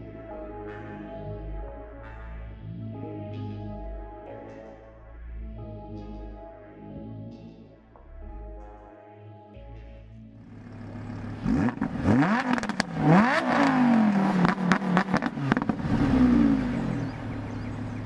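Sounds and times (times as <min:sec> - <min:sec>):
exhaust crackles and pops: 0:10.4 - 0:18.0
sports car engine revving: 0:10.4 - 0:18.0.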